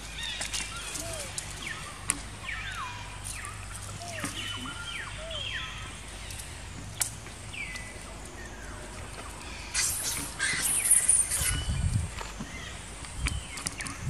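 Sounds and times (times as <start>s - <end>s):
high whistly animal calls: 0.7s - 2.0s, 2.6s - 5.8s.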